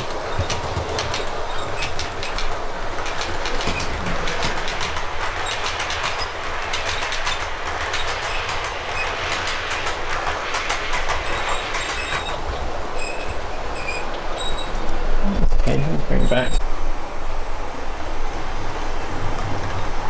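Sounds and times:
model train whirring: 0.0s - 15.0s
wheels clicking over rails: 0.0s - 15.0s.

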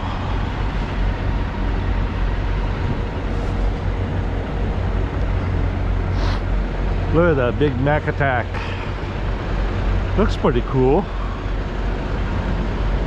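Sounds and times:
diesel truck engines idling: 0.0s - 13.0s
even hiss: 6.1s - 6.5s.

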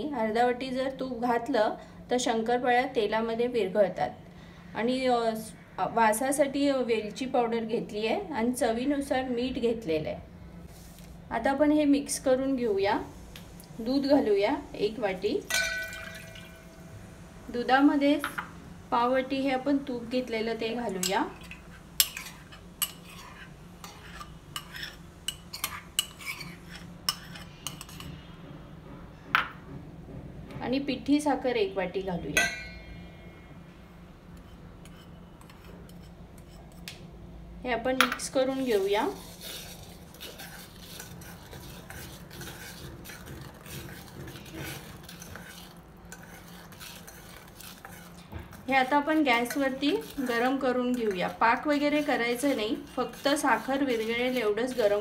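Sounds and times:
spoon clinking on metal: 15.5s - 16.6s
spoon scraping bowl: 20.2s - 28.2s, 34.4s - 36.9s, 38.5s - 55.0s.

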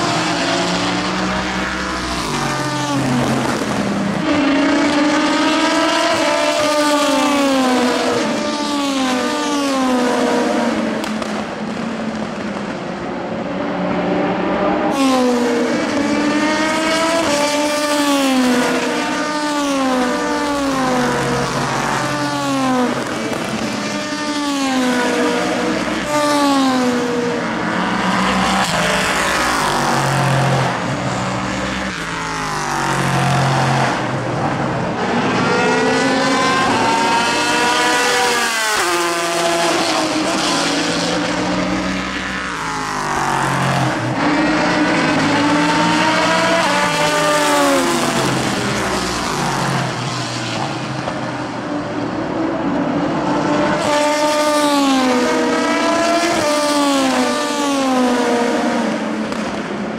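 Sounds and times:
race cars driving past: 0.0s - 59.9s.

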